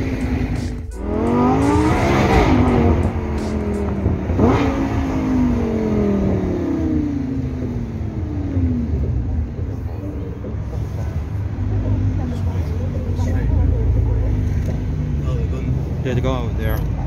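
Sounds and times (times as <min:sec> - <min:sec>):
car engine revving: 0:00.0 - 0:17.0.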